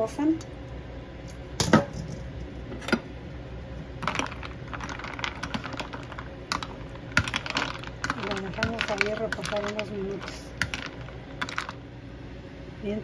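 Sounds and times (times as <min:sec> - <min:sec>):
ice cubes clinking: 0:04.0 - 0:11.8.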